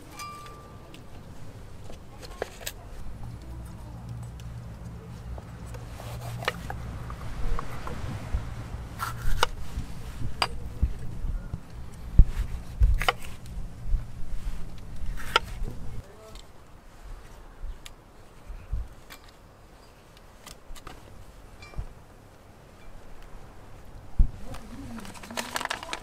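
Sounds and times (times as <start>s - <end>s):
low steady rumble: 2.8s - 16.0s
knife cutting on wooden board: 5.7s - 6.8s, 9.0s - 9.6s, 12.5s - 13.4s, 15.0s - 15.6s.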